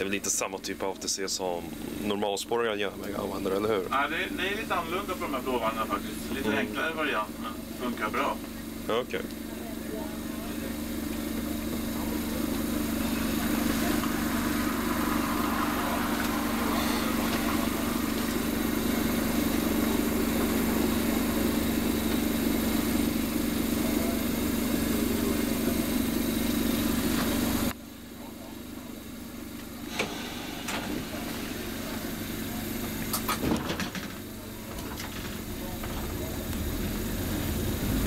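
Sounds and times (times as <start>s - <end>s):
electric train hum: 3.0s - 27.8s, 28.4s - 38.0s
train rolling rumble: 11.6s - 22.6s.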